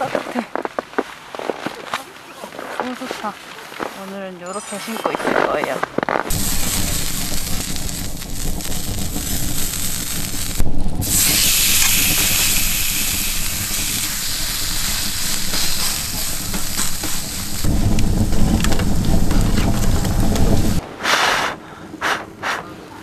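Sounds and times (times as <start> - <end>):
meat sizzling on a griddle: 6.3 - 17.7.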